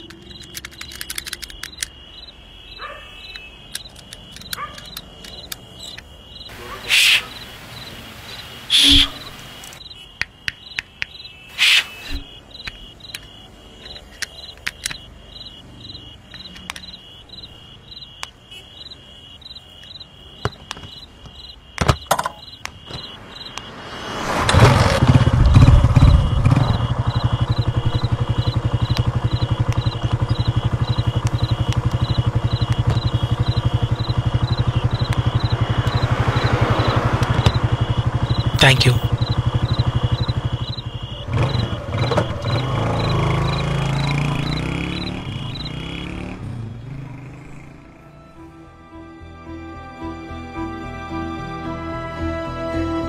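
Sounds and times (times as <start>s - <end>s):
sharp clicks: 0.0s - 2.3s, 3.2s - 6.1s, 9.6s - 15.5s, 16.2s - 17.0s, 27.0s - 40.8s
crickets chirping: 0.0s - 48.5s
scooter engine starting and idling: 24.4s - 38.5s, 39.1s - 46.2s.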